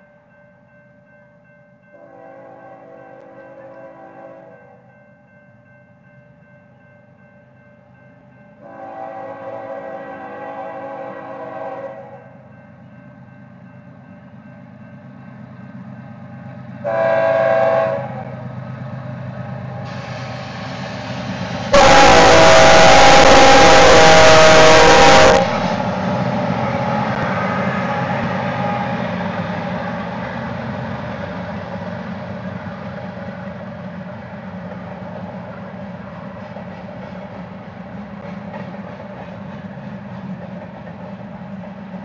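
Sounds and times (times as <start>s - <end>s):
train cars rumbling past: 1.4s - 42.0s
locomotive air horn blasts: 2.0s - 4.8s, 8.6s - 12.3s, 16.8s - 18.3s, 21.7s - 25.8s.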